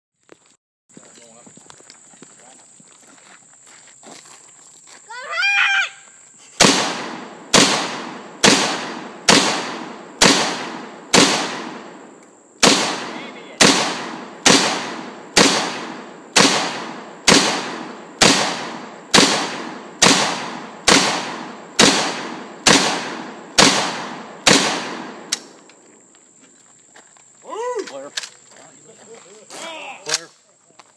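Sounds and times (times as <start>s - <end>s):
rifle shots with echo: 6.6s - 25.6s.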